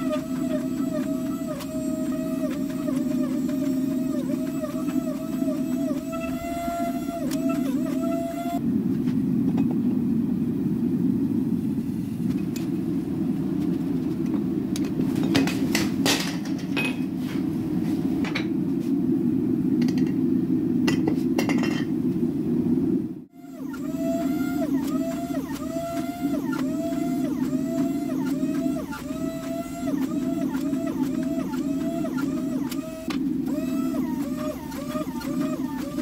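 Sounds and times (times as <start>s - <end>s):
hydraulic press pump whining: 0.0s - 8.6s, 23.3s - 36.0s.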